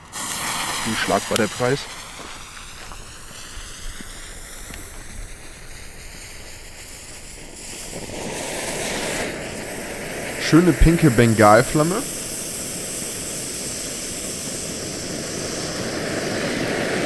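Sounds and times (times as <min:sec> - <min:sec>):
faint outdoor noise: 0:00.0 - 0:17.0
firework fountain hissing: 0:00.0 - 0:17.0.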